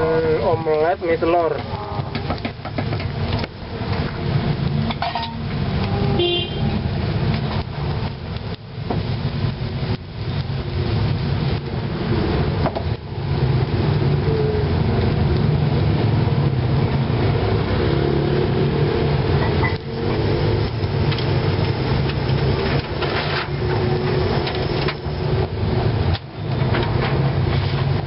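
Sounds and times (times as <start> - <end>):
food sizzling in hot oil: 3.2 - 22.7.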